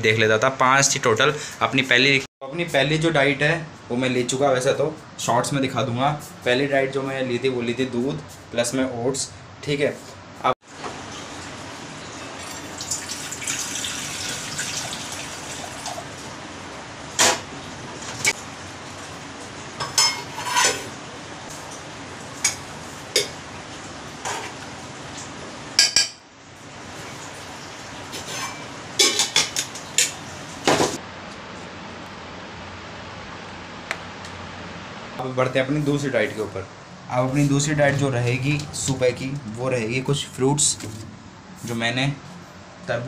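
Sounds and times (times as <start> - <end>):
steel kitchenware clinking: 28.2 - 30.2.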